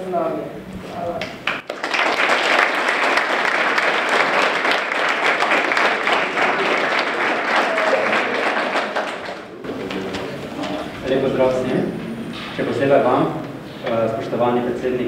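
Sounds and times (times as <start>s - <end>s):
audience applauding: 1.3s - 10.9s.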